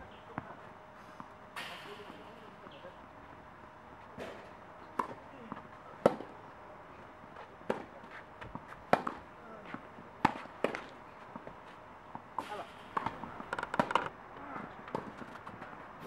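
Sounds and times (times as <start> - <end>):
rackets striking tennis ball: 4.2 - 5.2, 6.0 - 6.4, 8.9 - 9.2, 10.2 - 11.5, 12.2 - 14.2, 14.9 - 15.6
ball bouncing on court: 12.9 - 14.1.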